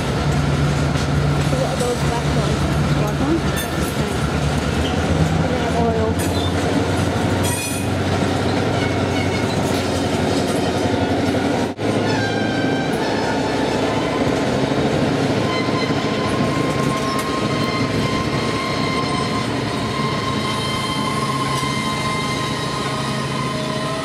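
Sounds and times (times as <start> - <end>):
train wheels rumbling on rails: 0.0 - 24.0
high-pitched wheel squeal: 8.5 - 9.8, 15.4 - 24.0.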